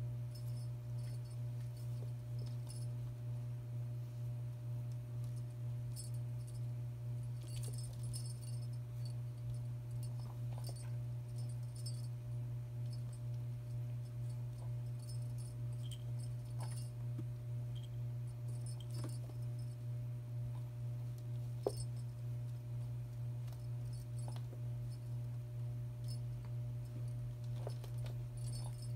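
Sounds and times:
low hum: 0:00.0 - 0:28.9
toy jingling: 0:28.4 - 0:28.9.

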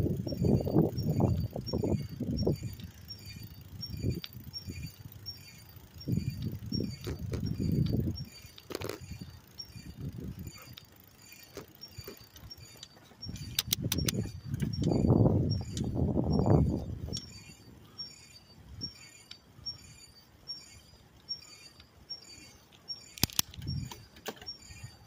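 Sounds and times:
wind rumble on microphone: 0:00.0 - 0:05.4, 0:06.0 - 0:10.8, 0:13.2 - 0:17.8, 0:23.2 - 0:24.1
bicycle ticking: 0:00.0 - 0:25.0
sharp click: 0:11.5 - 0:15.0, 0:23.1 - 0:24.5.

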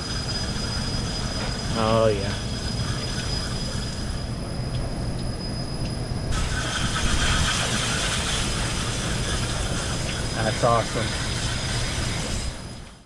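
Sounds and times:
pressurised water spraying: 0:06.3 - 0:12.3.

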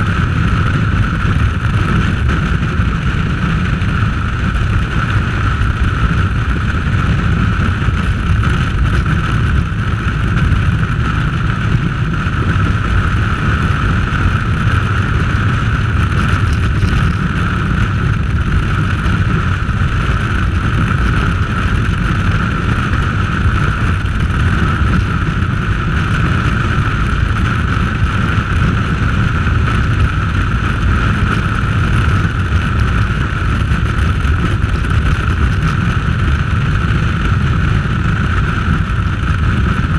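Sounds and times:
motorcycle engine: 0:00.0 - 0:39.9
road noise: 0:00.0 - 0:39.9
wind noise: 0:00.0 - 0:39.9.

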